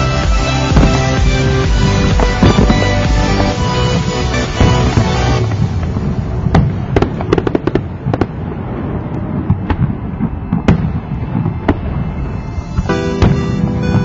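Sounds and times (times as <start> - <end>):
music with steady notes: 0.0 - 5.9, 12.3 - 14.0
fireworks bangs: 0.0 - 14.0
low rumble: 0.0 - 14.0.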